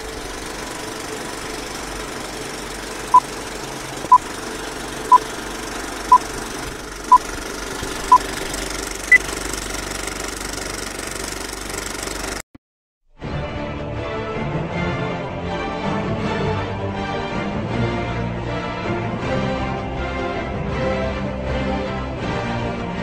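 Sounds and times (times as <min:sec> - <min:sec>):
film projector rattle and hiss: 0:00.0 - 0:12.4.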